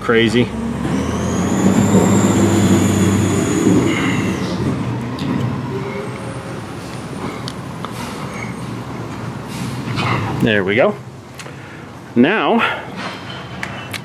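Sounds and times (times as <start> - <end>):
high squeal: 0.0 - 4.9
garbage truck engine running: 0.0 - 7.4.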